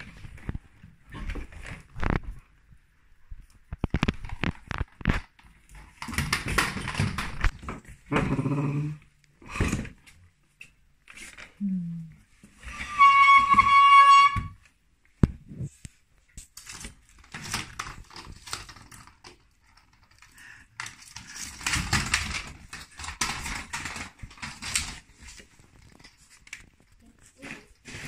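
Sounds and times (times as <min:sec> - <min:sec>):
treat ball rattling on tile floor: 0:16.5 - 0:27.3.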